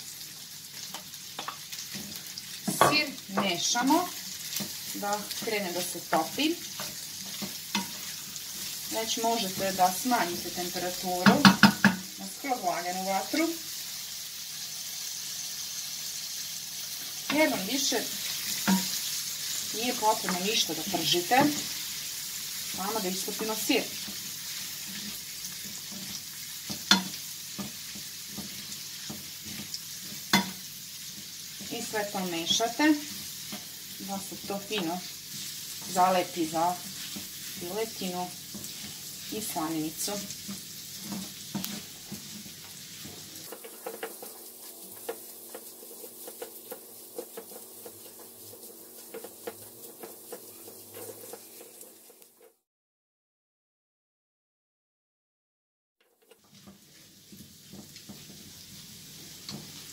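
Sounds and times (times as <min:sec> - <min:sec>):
meat sizzling in frying pan: 0:00.0 - 0:52.6, 0:56.0 - 0:59.9
spatula knocking pan: 0:00.9 - 0:08.2, 0:10.6 - 0:12.2, 0:18.2 - 0:19.1, 0:23.2 - 0:52.2, 0:56.0 - 0:58.6
wooden spatula scraping pan: 0:00.9 - 0:12.5, 0:17.3 - 0:22.0, 0:22.6 - 0:52.6.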